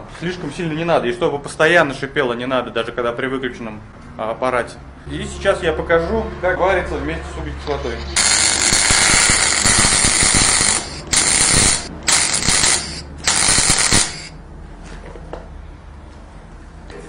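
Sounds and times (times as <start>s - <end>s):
welder arc crackling: 8.2s - 14.4s.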